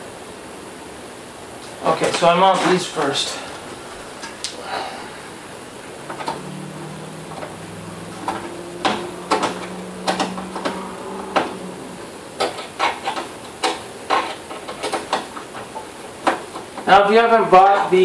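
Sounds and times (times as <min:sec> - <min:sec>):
low hum: 0:03.4 - 0:12.5.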